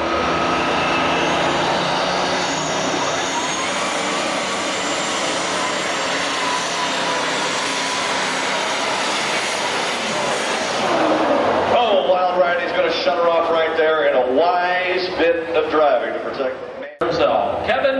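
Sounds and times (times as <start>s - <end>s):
tractor diesel engine at full load: 0.0s - 13.8s.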